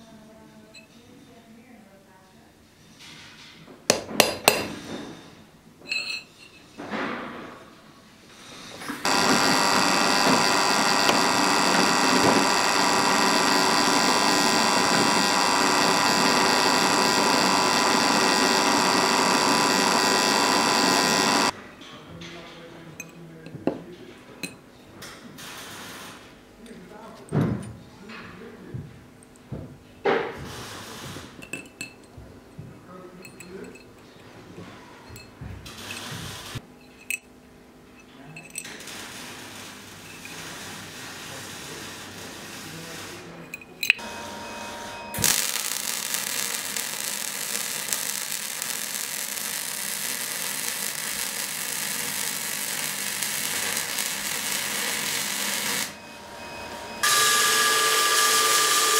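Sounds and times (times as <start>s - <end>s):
metal fitting clinking: 5.9s - 6.7s, 31.4s - 32.1s, 36.8s - 37.3s, 38.0s - 38.7s, 43.5s - 44.0s
drill press drilling steel: 8.9s - 21.6s, 43.9s - 58.9s.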